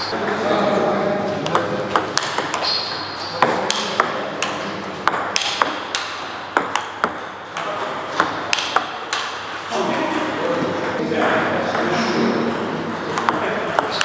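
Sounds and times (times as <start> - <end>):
ball bouncing on table: 1.4 - 11.0, 13.1 - 14.0
ping pong ball clicking on paddles: 1.4 - 11.0, 12.9 - 14.0.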